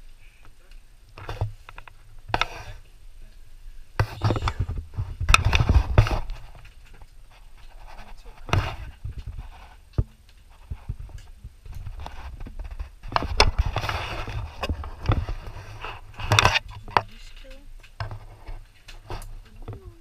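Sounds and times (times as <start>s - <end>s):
indistinct voices: 4.0s - 4.8s, 19.4s - 20.0s.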